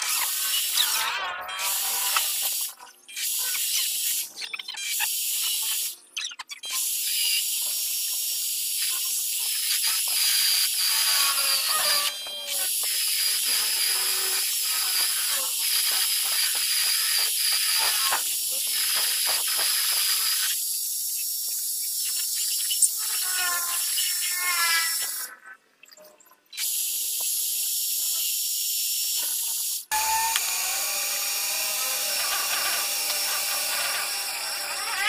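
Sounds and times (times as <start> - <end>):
metal lathe cutting with hiss: 6.9 - 21.2, 26.7 - 35.0.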